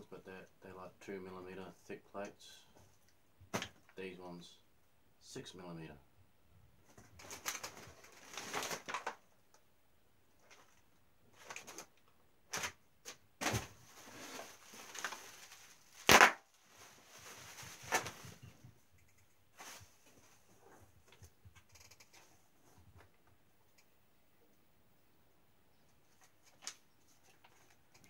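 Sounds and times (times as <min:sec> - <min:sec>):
bubble wrap crinkling: 0:07.2 - 0:09.2, 0:12.5 - 0:18.6, 0:19.5 - 0:20.5
sharp loud crackle: 0:16.0 - 0:16.4.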